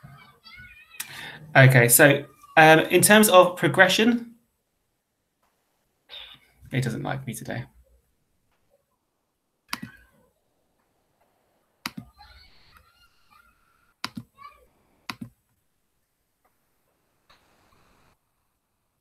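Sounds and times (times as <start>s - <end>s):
computer mouse clicks: 9.7s - 10.0s, 11.8s - 12.1s, 14.0s - 14.3s, 15.1s - 15.3s.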